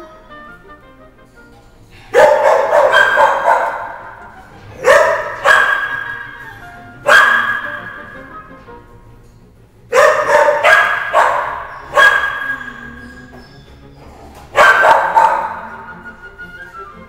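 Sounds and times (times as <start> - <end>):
dog barking with echo: 2.1 - 8.3, 9.9 - 13.4, 14.5 - 16.0.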